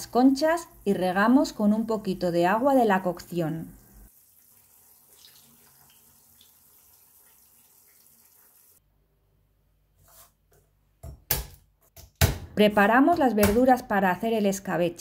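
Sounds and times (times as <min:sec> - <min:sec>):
water trickling from a ladle: 0:03.8 - 0:08.8.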